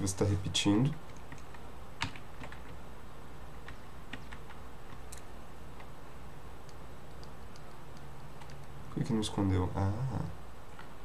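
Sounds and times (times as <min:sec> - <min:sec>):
steady low hum: 0:00.0 - 0:11.0
computer keyboard keys clicking: 0:01.0 - 0:02.8, 0:03.6 - 0:05.9, 0:06.6 - 0:08.8.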